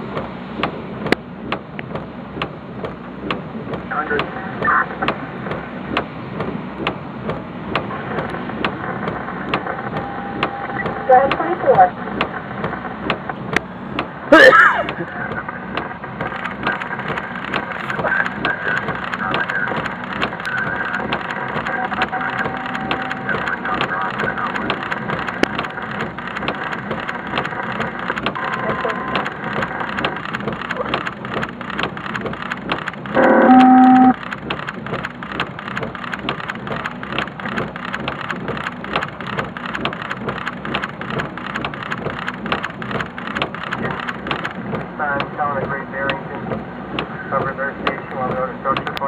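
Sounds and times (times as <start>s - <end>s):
raindrops ticking near microphone: 0.0s - 33.2s, 34.1s - 49.0s
loud electronic tone: 33.2s - 34.2s.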